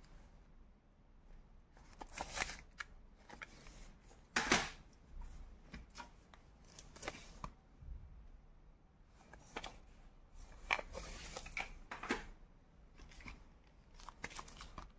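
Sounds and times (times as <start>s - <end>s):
plastic clicks and rustles: 9.2s - 14.9s.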